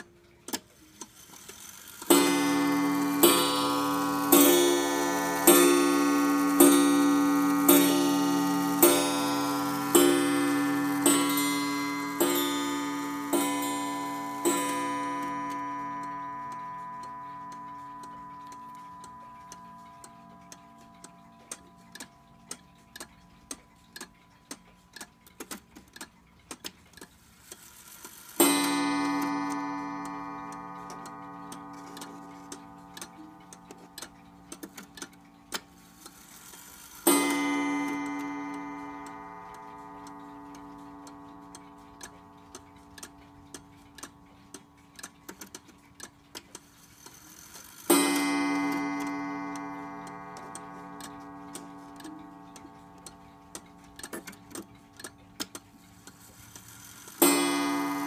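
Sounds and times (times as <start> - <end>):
pendulum clock ticking: 0.0 - 58.0
clock gong strikes: 2.1 - 24.4, 28.4 - 35.5, 37.1 - 45.0, 47.9 - 55.8, 57.1 - 58.0.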